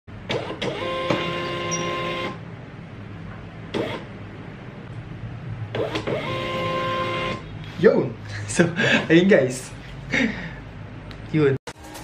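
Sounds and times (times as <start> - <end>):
label printer motor whine: 0.3 - 2.4, 5.8 - 7.4.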